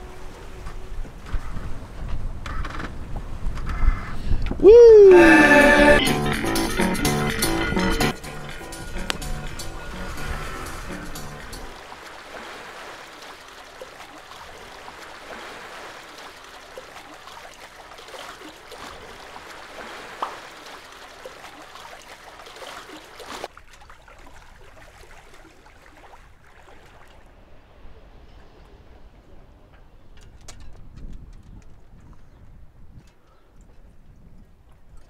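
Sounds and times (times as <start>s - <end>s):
water rushing along boat hull: 0.0s - 3.6s, 4.5s - 30.4s
small splashes: 11.7s - 27.9s.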